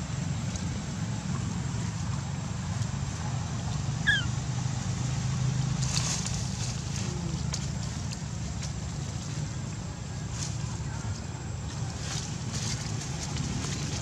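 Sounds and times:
short high squeak: 4.1s - 4.3s.

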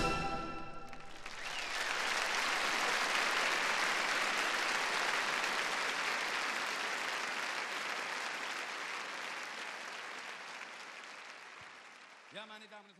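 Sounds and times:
large audience applauding: 0.8s - 12.9s.

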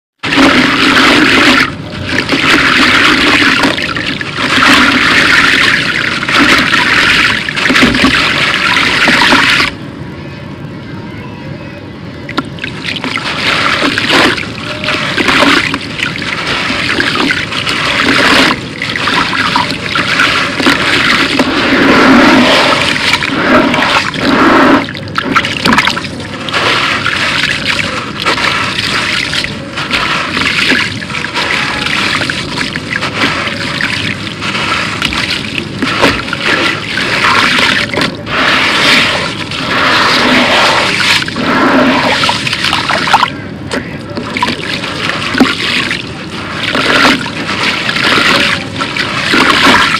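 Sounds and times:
water splashing and sloshing: 0.2s - 9.8s, 12.2s - 49.9s
gritty concrete crumbling: 25.3s - 43.1s.

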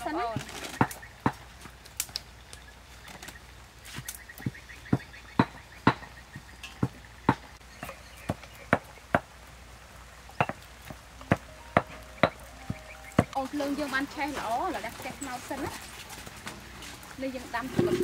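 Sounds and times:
food preparation strikes: 11.2s - 13.4s.

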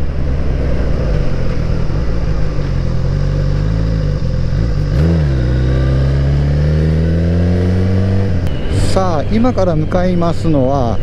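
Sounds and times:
motorcycle engine accelerating: 0.0s - 9.0s.

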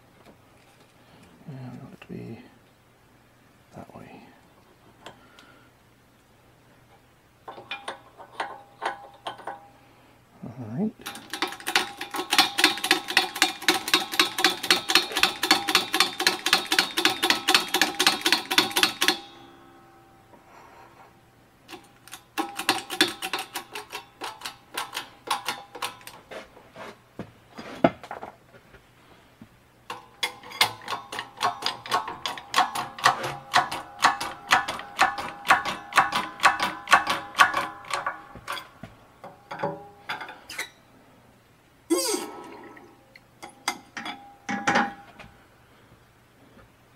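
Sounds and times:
hydraulic pump clicking: 11.0s - 19.3s.

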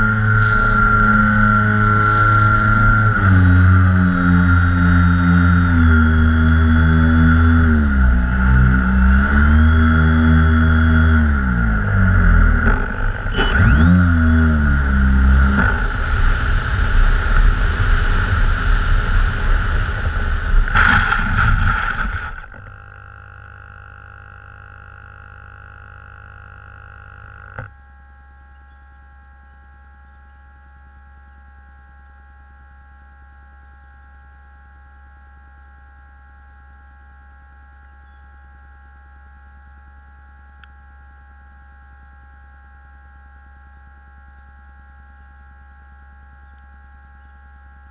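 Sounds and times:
electric motors whining: 0.0s - 27.7s
faint electronic whine: 0.0s - 47.9s
click: 40.6s - 40.8s.

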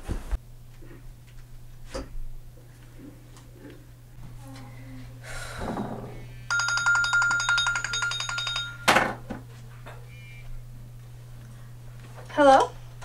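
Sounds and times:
phone ringtone electronic trill: 6.5s - 9.0s.

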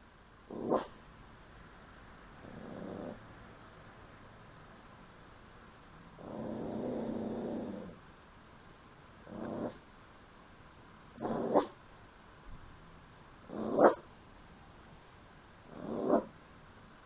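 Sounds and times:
small dog growling: 0.5s - 0.9s, 2.4s - 3.3s, 6.2s - 8.0s, 9.2s - 9.8s, 11.2s - 11.8s, 13.4s - 14.0s, 15.6s - 16.4s
dog woofing gruffly: 11.2s - 11.7s, 13.5s - 14.0s, 15.7s - 16.3s.

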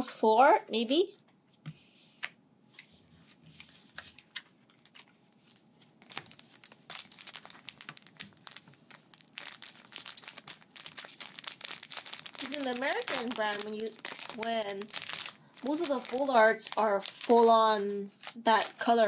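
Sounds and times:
foil pack crinkling: 4.1s - 19.0s.

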